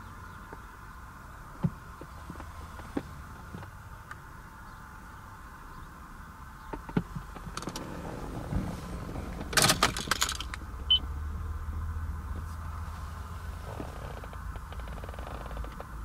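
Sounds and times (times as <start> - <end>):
car engine idling: 0.0 - 16.0
clicking and rattling: 9.4 - 10.6.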